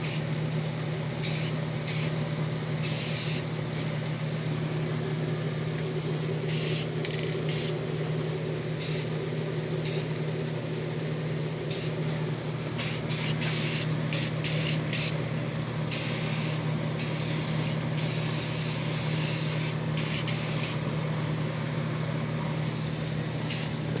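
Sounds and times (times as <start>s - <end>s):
spray-paint can hissing: 0.0s - 0.2s, 1.2s - 2.1s, 2.8s - 3.4s, 6.5s - 6.9s, 7.5s - 7.8s, 8.8s - 9.1s, 9.8s - 10.1s, 11.7s - 12.0s, 12.8s - 15.2s, 15.9s - 20.8s, 23.5s - 24.0s
steady low hum: 0.0s - 24.0s.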